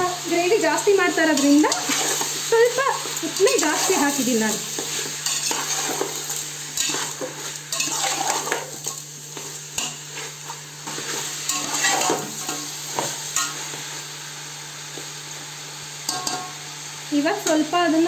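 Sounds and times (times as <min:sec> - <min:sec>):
chicken frying: 0:00.0 - 0:18.0
metal spoon scraping pot: 0:06.8 - 0:08.6.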